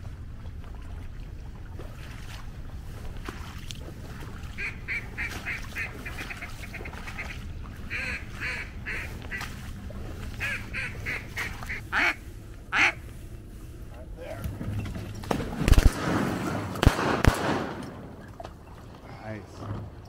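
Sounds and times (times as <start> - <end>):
duck quacking: 4.5 - 9.6, 10.3 - 13.1.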